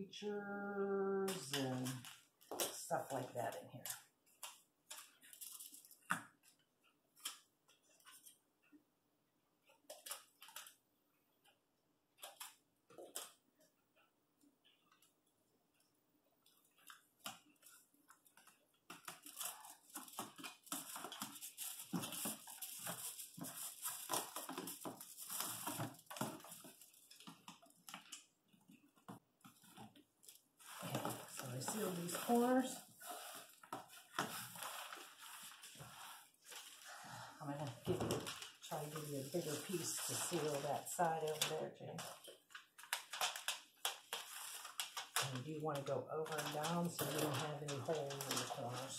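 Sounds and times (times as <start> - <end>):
foil tape crinkling: 1.2 - 6.4, 16.5 - 37.0, 38.1 - 48.9.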